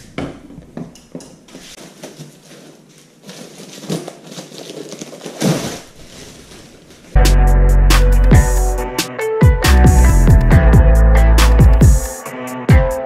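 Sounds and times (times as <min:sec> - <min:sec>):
netting rustling: 0:01.5 - 0:07.2.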